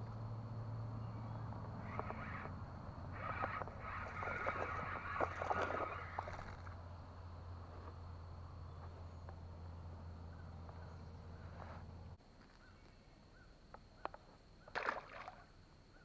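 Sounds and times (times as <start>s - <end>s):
high insect buzz: 0.0s - 9.4s
bird chirps: 1.0s - 6.8s.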